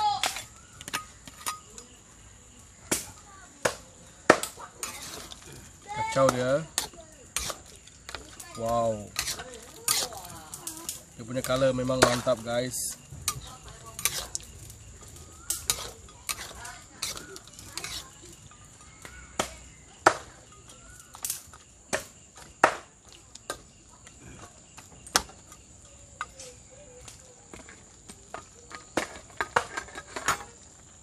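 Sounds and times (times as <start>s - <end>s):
metal spatula scraping a wok: 4.8s - 10.4s, 11.3s - 19.0s.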